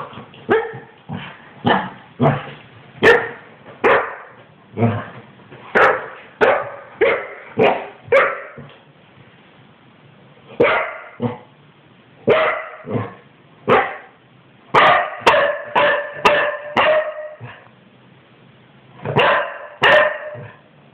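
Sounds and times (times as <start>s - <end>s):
dog barking: 0.5s - 0.9s, 3.0s - 4.4s, 5.7s - 8.6s, 10.6s - 11.4s, 12.3s - 14.1s, 14.7s - 17.6s, 19.1s - 20.6s.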